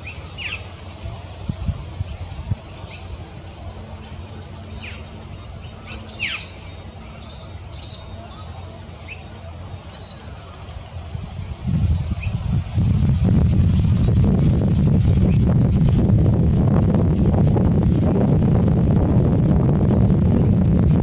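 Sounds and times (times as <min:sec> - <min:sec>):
small birds chirping: 0:00.0 - 0:12.7
low rumble: 0:10.9 - 0:21.0.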